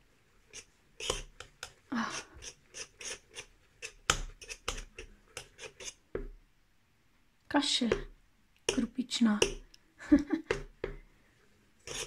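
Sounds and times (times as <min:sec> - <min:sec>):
whisk scraping metal pot: 0:00.0 - 0:06.0.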